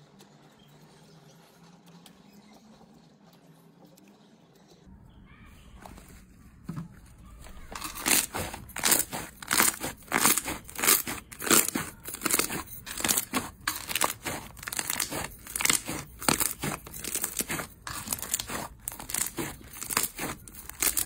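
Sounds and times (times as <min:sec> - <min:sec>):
crunchy slime crackling: 0:07.1 - 0:21.0.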